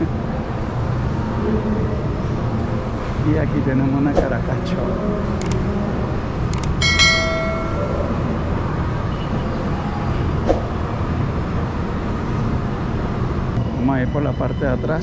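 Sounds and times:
sharp clicks: 5.4 - 5.6, 6.6 - 6.8
metallic ringing clink: 6.6 - 8.3.

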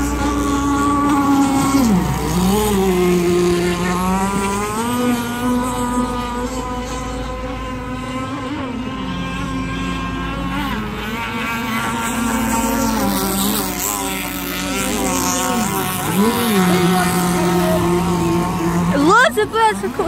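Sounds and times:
powerboat engines at high revs: 0.0 - 20.0.

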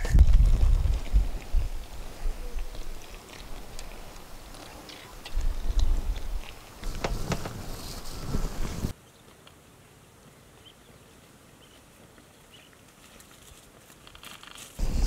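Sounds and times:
wind rumble on microphone: 0.0 - 4.4, 5.2 - 8.9, 14.8 - 15.0
faint hiss: 0.7 - 15.0.

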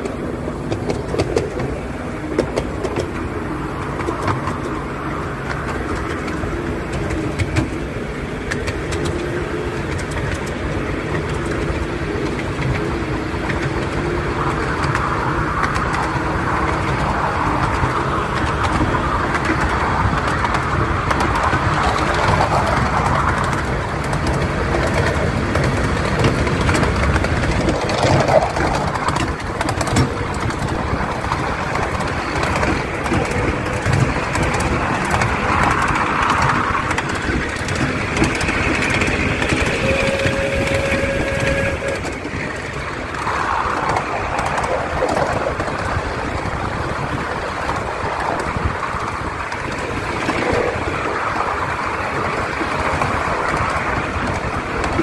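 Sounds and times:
wheels clattering on track: 0.0 - 55.0
brief steady tone: 39.6 - 42.1.

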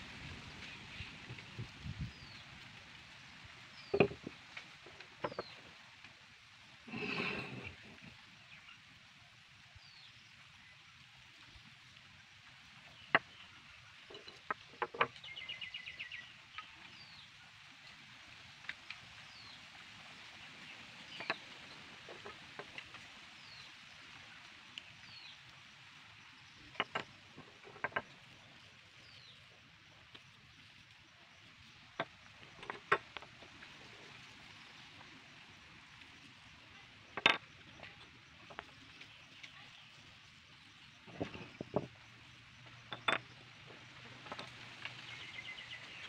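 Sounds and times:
birds chirping: 3.7 - 5.7, 12.9 - 17.3, 21.0 - 22.3, 44.2 - 46.0.

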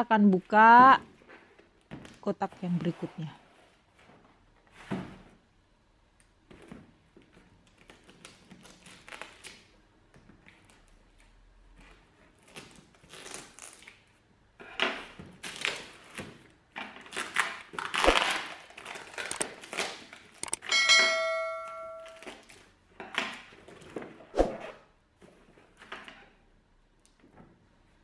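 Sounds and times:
cardboard and tape scraping: 11.8 - 14.0, 14.8 - 20.6
notification chime: 20.7 - 22.2.

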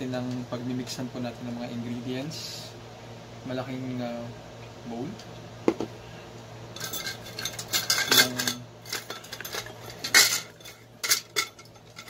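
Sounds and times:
utensils clattering in a bowl: 6.8 - 12.0.

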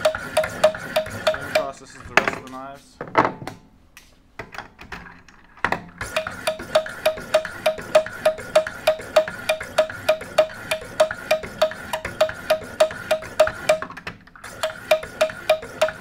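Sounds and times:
sharpening stones stroking knife blade: 0.1 - 1.7.

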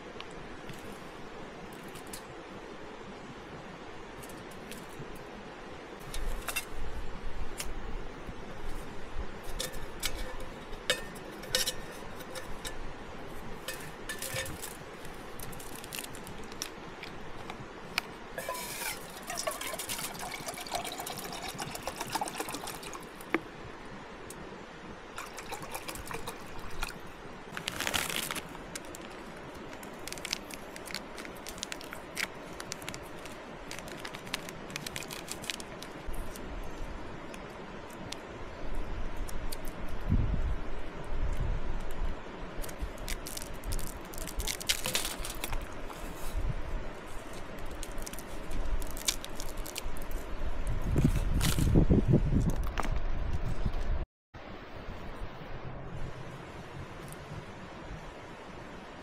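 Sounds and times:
water pouring into metal pot: 18.4 - 23.0.

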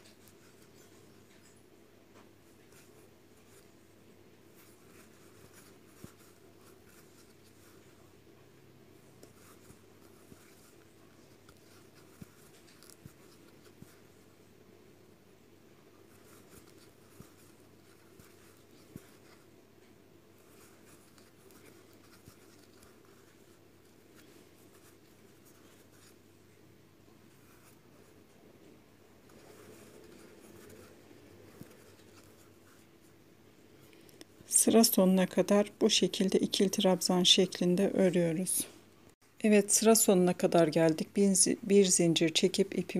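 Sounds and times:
crochet hook rubbing yarn: 0.0 - 1.6, 2.4 - 3.9, 4.5 - 8.2, 9.0 - 14.4, 16.0 - 19.6, 20.4 - 26.3, 27.3 - 28.3, 29.2 - 33.2
low room hum: 0.0 - 42.9.

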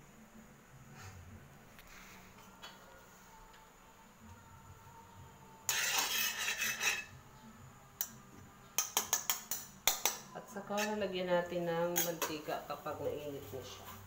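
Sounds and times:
metal spatula scraping wok: 5.6 - 7.2, 10.6 - 14.0
spatula clinking against pan: 8.8 - 10.2.

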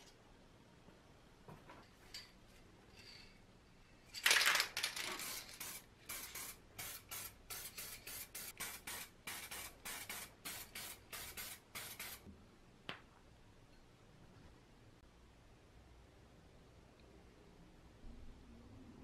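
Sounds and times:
aerosol spray hissing: 5.2 - 12.3.

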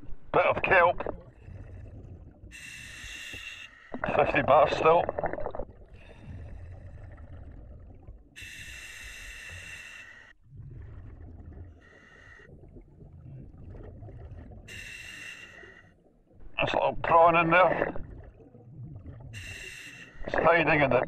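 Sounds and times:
bubbling exhaled air: 1.1 - 16.0, 17.6 - 20.3
hissing inhalation: 1.4 - 4.1, 8.4 - 10.4, 14.5 - 16.0, 19.4 - 20.3.

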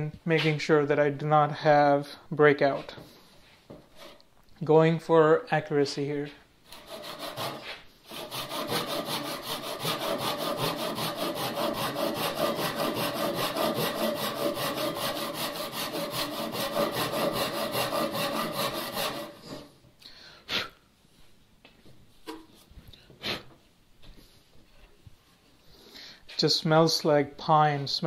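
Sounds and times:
hand saw rasping through wood: 6.7 - 19.7.

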